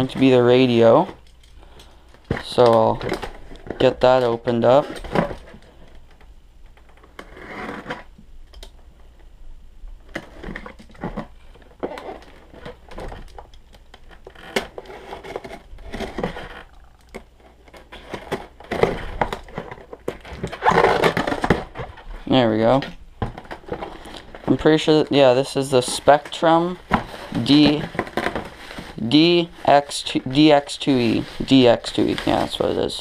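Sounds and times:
cardboard rustling and crinkling: 0.0s - 1.5s, 2.1s - 6.2s, 10.0s - 33.0s.

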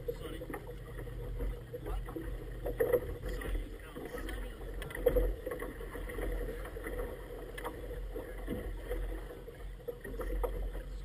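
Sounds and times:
water splashing against inflatable boat: 0.0s - 11.0s.

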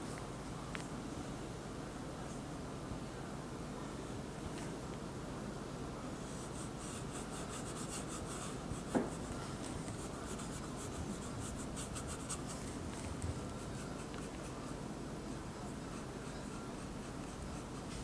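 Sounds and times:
paintbrush brushing: 6.2s - 14.8s
knock: 8.9s - 9.2s.

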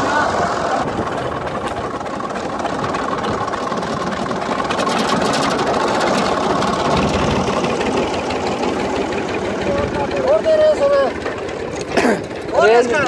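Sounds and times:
tractor engine running: 0.0s - 13.0s.

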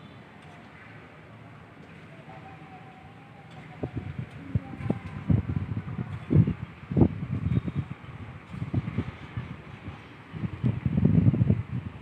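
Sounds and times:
wind buffeting microphone: 3.5s - 12.0s.

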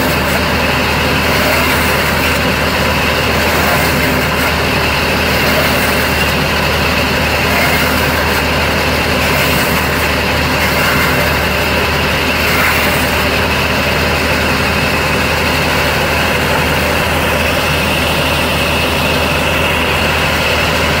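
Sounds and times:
band saw: 0.0s - 21.0s
diesel engine running: 0.0s - 21.0s.

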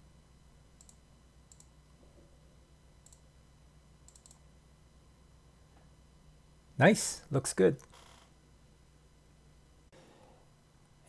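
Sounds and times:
low steady hum: 0.0s - 11.0s
computer mouse clicks: 0.8s - 1.7s, 3.0s - 3.2s, 4.1s - 4.4s.

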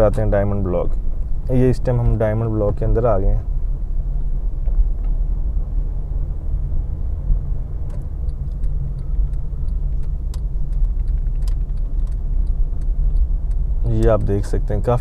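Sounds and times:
car engine and road noise: 0.0s - 15.0s
light clicks and rattles: 7.8s - 15.0s.

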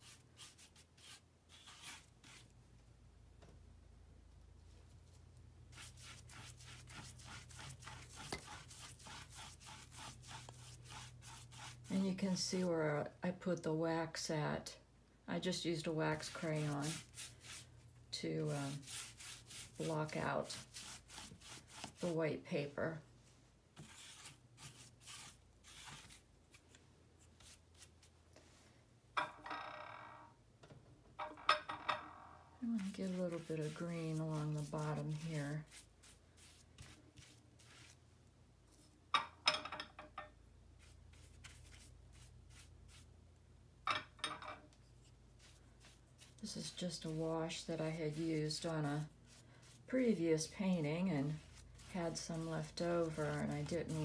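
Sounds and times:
brush stroking wet paper: 0.0s - 2.5s, 5.0s - 12.7s, 15.7s - 22.3s, 23.8s - 28.1s, 32.6s - 38.0s, 40.8s - 43.1s, 44.9s - 54.0s.

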